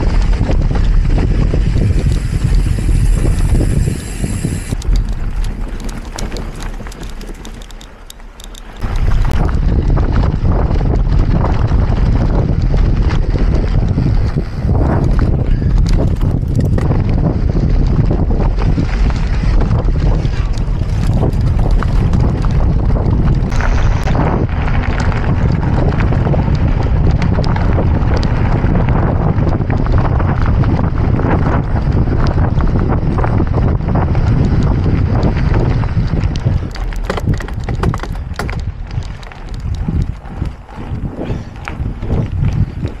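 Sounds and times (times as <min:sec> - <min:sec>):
wind buffeting microphone: 0:00.0 - 0:43.0
clicks and knocks: 0:36.7 - 0:38.7.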